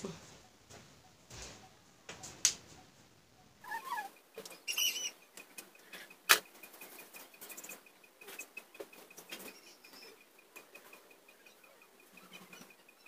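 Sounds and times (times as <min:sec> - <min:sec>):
faint fast ticking: 0:03.9 - 0:13.0.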